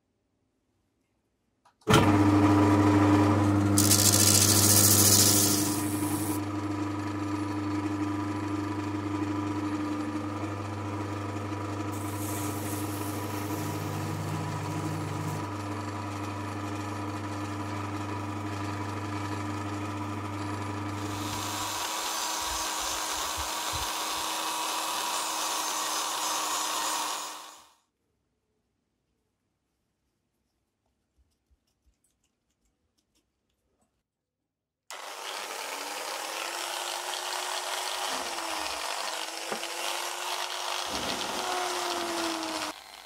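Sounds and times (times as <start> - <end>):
disc sander motor hum: 1.9 - 27.6, 34.9 - 43.0
metal grinding on sanding disc: 3.8 - 6.4.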